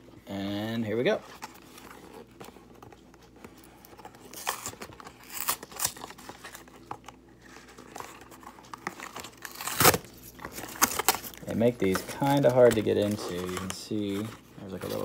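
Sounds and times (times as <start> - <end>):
cardboard crinkling: 1.1 - 15.0
cardboard box being torn open: 4.3 - 6.6, 9.0 - 13.7.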